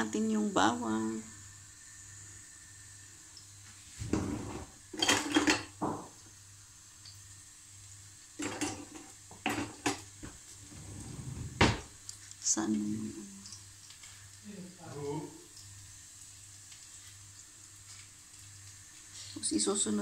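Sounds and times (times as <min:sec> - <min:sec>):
pan and utensils clattering: 0:04.0 - 0:06.2, 0:08.4 - 0:11.9.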